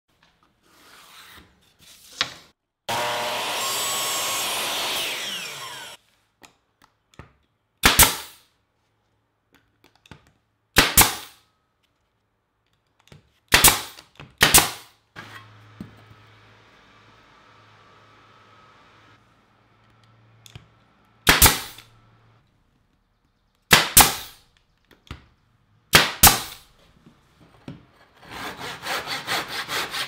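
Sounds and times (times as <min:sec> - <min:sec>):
nail gun firing: 0:07.8 - 0:08.4, 0:10.8 - 0:11.4, 0:13.5 - 0:14.9, 0:21.2 - 0:21.9, 0:23.7 - 0:24.4, 0:25.9 - 0:26.7.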